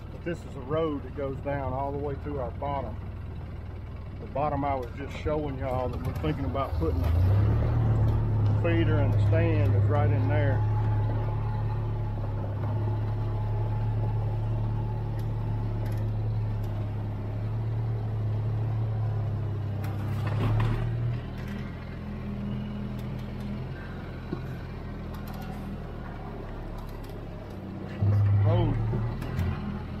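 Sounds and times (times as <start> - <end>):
utility vehicle engine running: 0.0 - 30.0.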